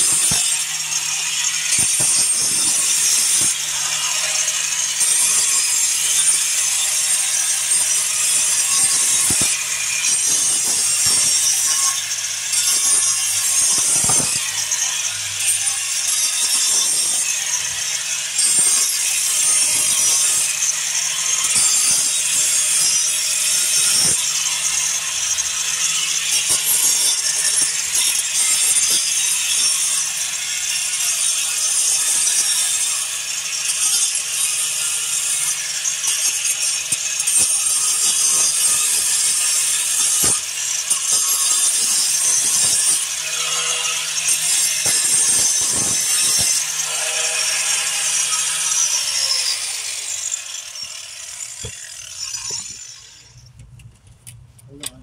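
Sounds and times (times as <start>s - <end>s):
grinder grinding brick: 0.0s - 55.0s.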